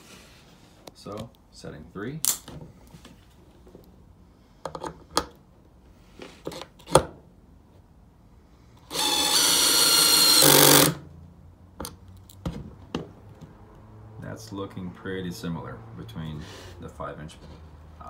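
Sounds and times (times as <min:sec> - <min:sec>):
cordless screwdriver driving screw: 0:08.9 - 0:11.0.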